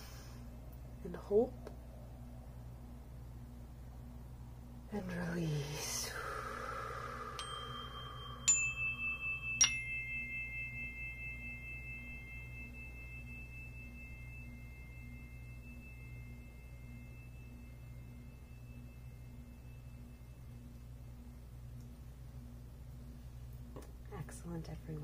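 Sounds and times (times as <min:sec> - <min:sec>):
metallic chime strikes: 0:07.3 - 0:21.1.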